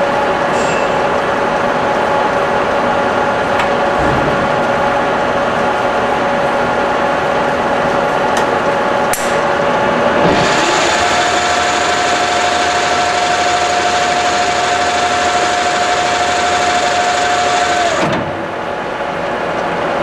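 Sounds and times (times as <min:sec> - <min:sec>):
lathe motor humming and whining: 0:04.6 - 0:20.0
lathe chuck spinning up: 0:10.3 - 0:18.2.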